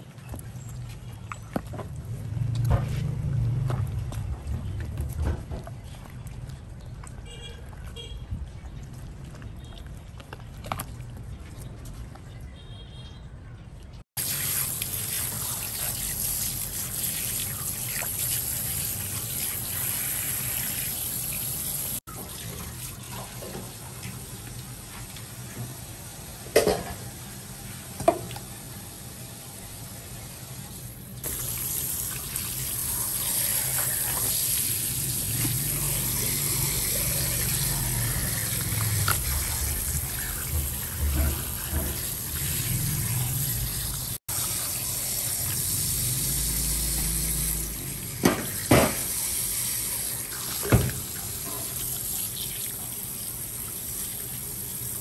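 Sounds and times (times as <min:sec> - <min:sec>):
tap water running: 0:14.2 - 0:26.9, 0:31.2 - 0:55.0.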